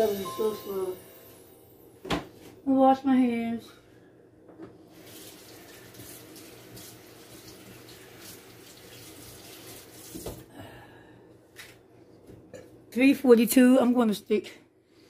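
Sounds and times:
faint running water from tap: 0:04.9 - 0:10.5.

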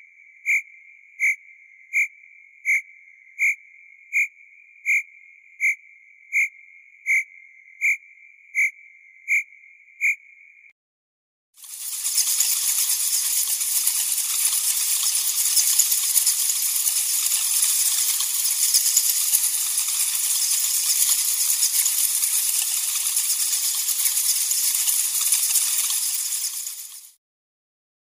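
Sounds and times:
bats chittering: 0:00.4 - 0:00.6, 0:11.6 - 0:27.2.

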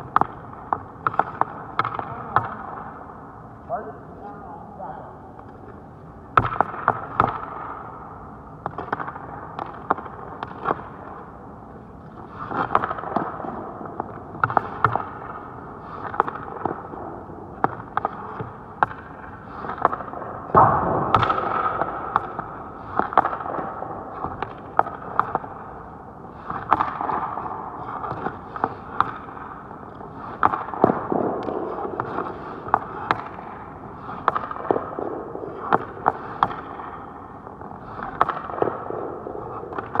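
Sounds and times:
sticks cracking hockey pucks: 0:00.0 - 0:02.8, 0:06.4 - 0:07.8, 0:08.6 - 0:11.1, 0:12.1 - 0:17.0, 0:17.6 - 0:25.7, 0:26.4 - 0:40.0
skates scraping ice: 0:12.1 - 0:40.0.

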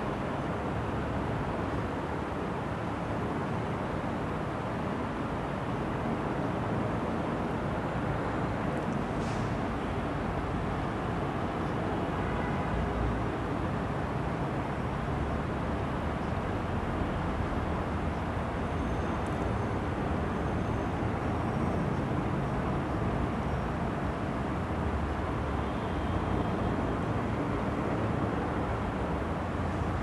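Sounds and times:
low rumbling noise with hiss: 0:00.0 - 0:30.0.

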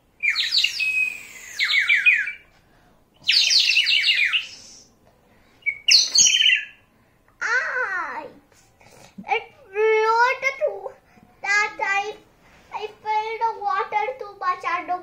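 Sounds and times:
clay bird whistle trilling: 0:00.2 - 0:02.5, 0:03.2 - 0:04.9, 0:05.6 - 0:06.8.

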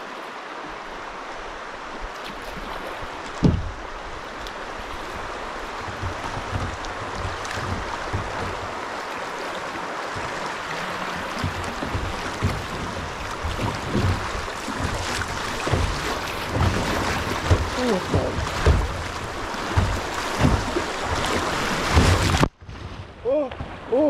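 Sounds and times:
rushing river water: 0:00.0 - 0:24.0
soft low bumps: 0:03.3 - 0:09.1, 0:11.2 - 0:23.8
sharp low thump: 0:03.4 - 0:03.8.

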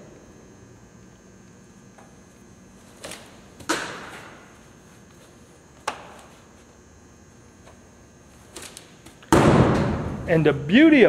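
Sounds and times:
baseballs smacking into gloves: 0:03.0 - 0:04.3, 0:05.8 - 0:06.3.

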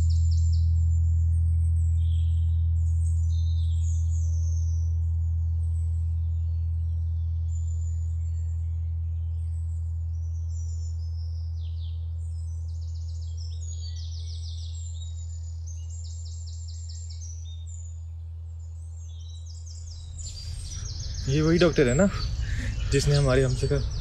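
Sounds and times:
low steady drone: 0:00.0 - 0:24.0
birds chirping and trilling: 0:11.6 - 0:24.0.

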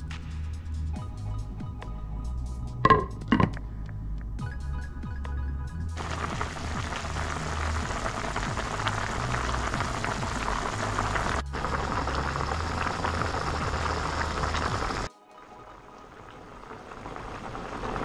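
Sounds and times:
background music with bass line: 0:00.0 - 0:15.1
soup boiling and bubbling: 0:06.0 - 0:15.1, 0:15.7 - 0:18.0.

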